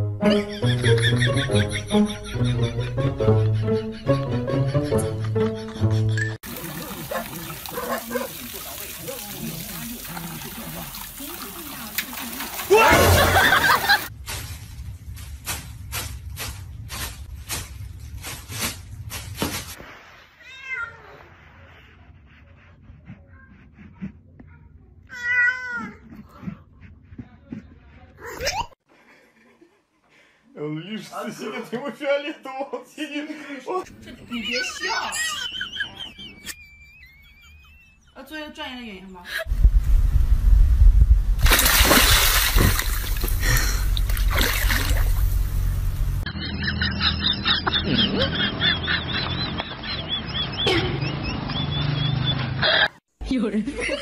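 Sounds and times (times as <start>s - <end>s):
water splashing and sloshing: 6.4s - 21.7s, 41.0s - 46.3s
low rumble: 39.5s - 41.6s.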